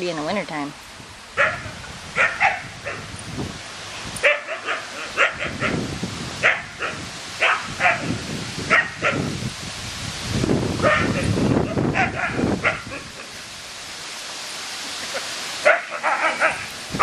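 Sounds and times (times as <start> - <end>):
dogs barking in play: 1.3 - 3.2, 4.2 - 9.4, 10.8 - 13.5, 15.1 - 17.0.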